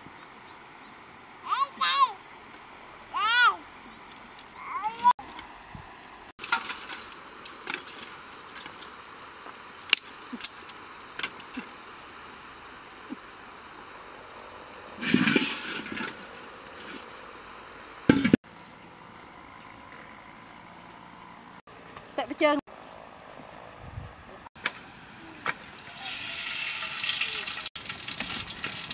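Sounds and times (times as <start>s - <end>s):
faint outdoor background: 0.0s - 28.9s
rustle or scrape: 15.0s - 17.2s, 27.9s - 28.9s.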